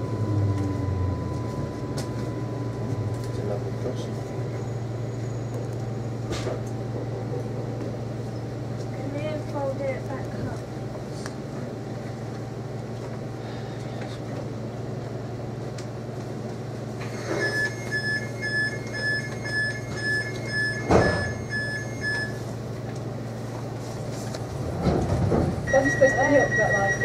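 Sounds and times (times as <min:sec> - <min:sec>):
door warning beeps: 0:17.0 - 0:22.4, 0:25.6 - 0:27.0
train diesel engines idling: 0:17.4 - 0:27.0
train doors shutting thud: 0:20.8 - 0:21.4.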